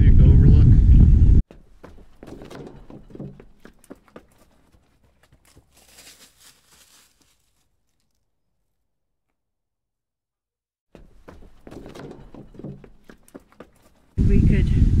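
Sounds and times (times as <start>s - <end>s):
footsteps crunching on gravel: 1.5s - 8.2s.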